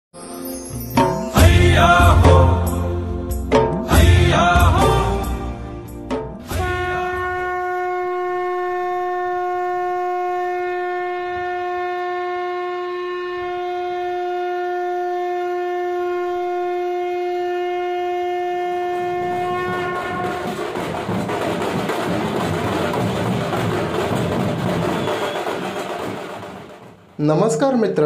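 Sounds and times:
large drums playing: 0:01.0 - 0:07.4, 0:18.9 - 0:27.5
conch shell blown: 0:06.4 - 0:20.9, 0:24.8 - 0:25.8.

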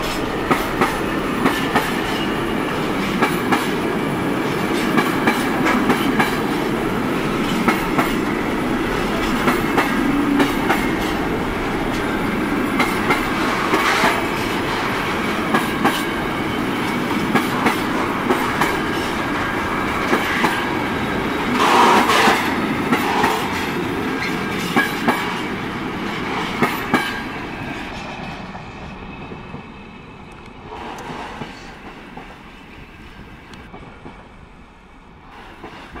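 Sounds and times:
train wheels clacking over rail joints: 0:00.0 - 0:28.6
train rumble: 0:00.0 - 0:36.0.

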